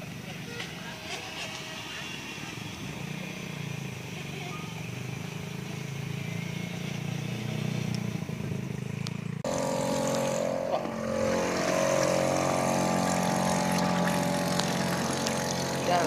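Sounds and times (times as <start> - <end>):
speedboat motor whine: 9.4 - 16.0
water hiss: 9.5 - 16.0.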